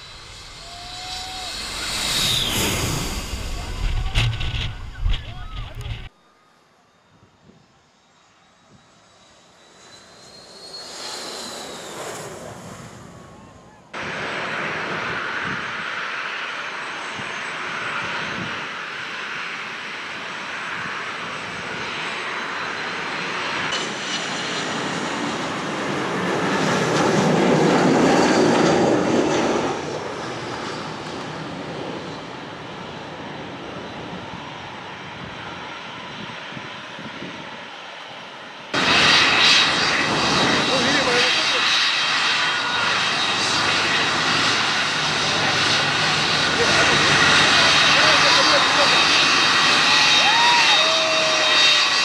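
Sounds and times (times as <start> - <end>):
jet engines landing: 0.0 - 52.0.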